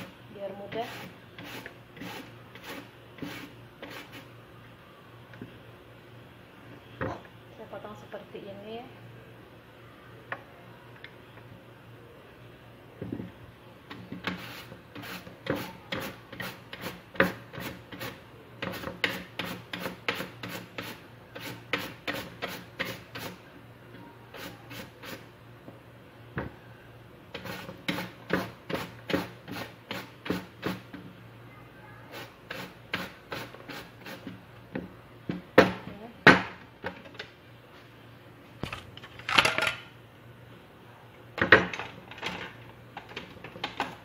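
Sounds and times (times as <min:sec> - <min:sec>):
mandoline slicer scraping: 0:00.7 - 0:04.2.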